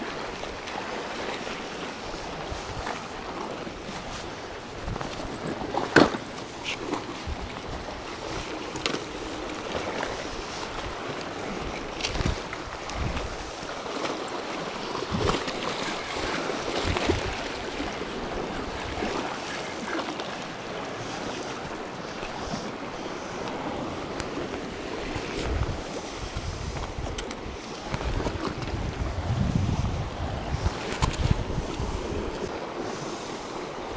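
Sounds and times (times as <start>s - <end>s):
surf washing against rocks: 0.0s - 33.9s
wind on microphone: 2.0s - 5.7s, 6.6s - 13.8s, 14.6s - 20.1s, 21.1s - 33.9s.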